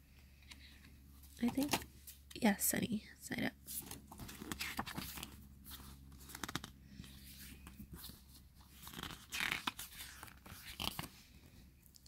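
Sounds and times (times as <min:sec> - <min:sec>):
book pages rustling: 0:03.6 - 0:11.3.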